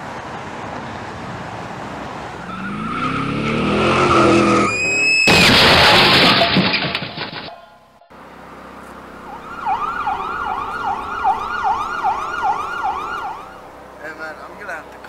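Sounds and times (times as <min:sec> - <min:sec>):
siren yelping: 0:02.4 - 0:05.3, 0:09.2 - 0:13.7.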